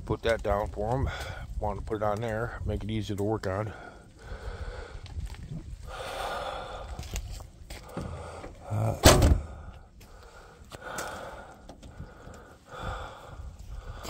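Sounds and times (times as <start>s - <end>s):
hard thump: 9.0s - 9.6s.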